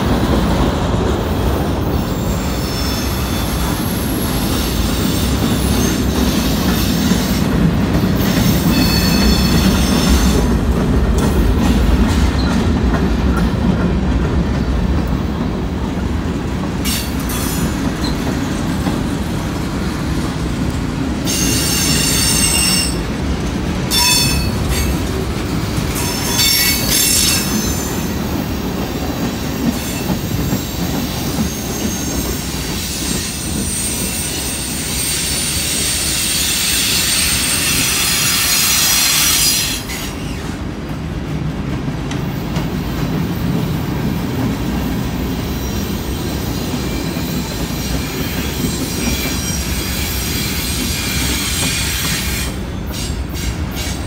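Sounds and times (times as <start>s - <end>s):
train wheels rumbling on rail: 0.0s - 54.0s
high-pitched wheel squeals: 8.5s - 10.3s.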